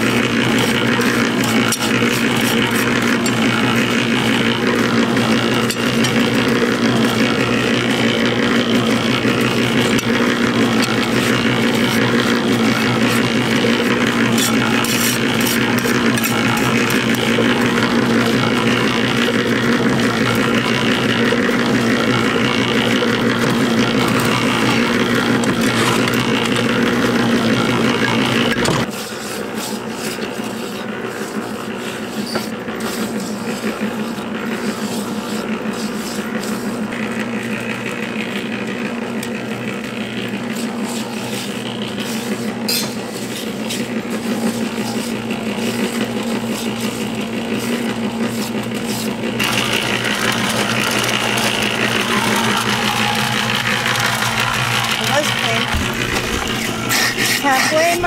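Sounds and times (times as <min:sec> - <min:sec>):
cement mixer humming: 0:00.0 - 0:58.0.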